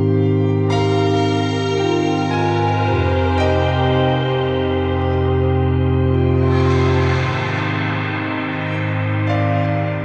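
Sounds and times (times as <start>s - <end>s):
soft keyboard chords: 0.0s - 10.0s
steady bass: 0.0s - 10.0s.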